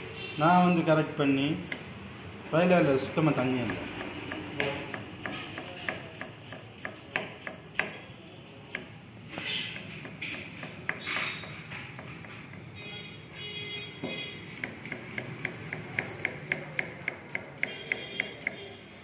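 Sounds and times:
knife chopping on wooden board: 3.4s - 8.0s, 8.7s - 12.6s, 14.5s - 18.6s
knife scraping: 9.3s - 12.6s.

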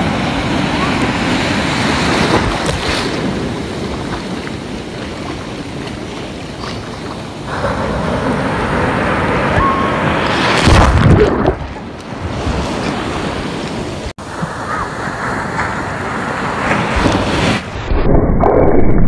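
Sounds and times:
ocean surf breaking: 0.0s - 17.9s.

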